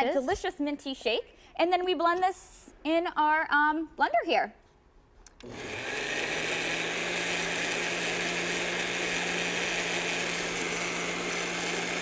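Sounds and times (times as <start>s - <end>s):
blender running: 5.4s - 12.0s.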